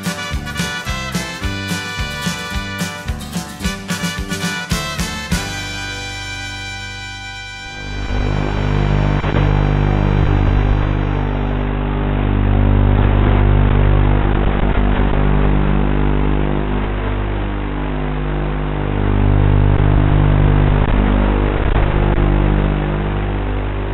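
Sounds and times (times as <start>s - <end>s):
drone motors humming: 7.2s - 23.9s.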